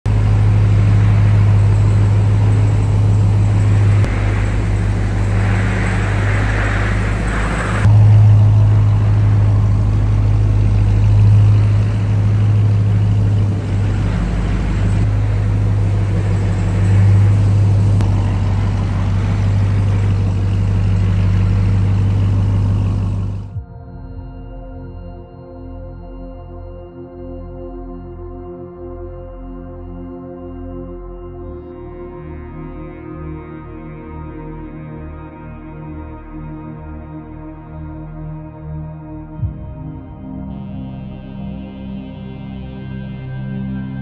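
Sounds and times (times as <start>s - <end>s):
low engine drone: 0.0s - 25.6s, 39.2s - 44.0s.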